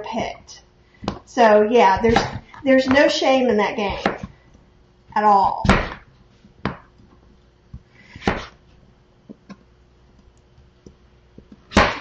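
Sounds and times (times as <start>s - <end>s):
knife chopping on plastic board: 1.9s - 3.1s, 3.8s - 4.4s, 5.4s - 6.9s, 8.1s - 8.6s.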